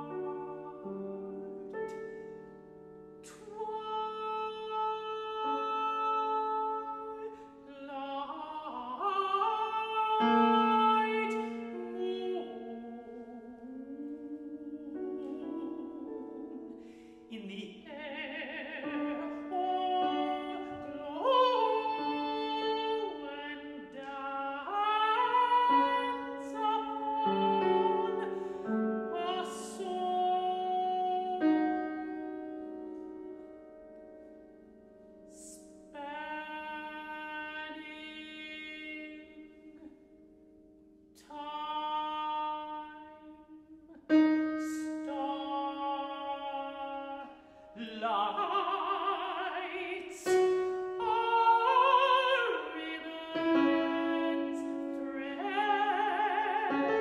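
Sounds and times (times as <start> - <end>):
grand piano accompaniment: 0.0 - 57.0
countertenor singing: 3.2 - 32.6.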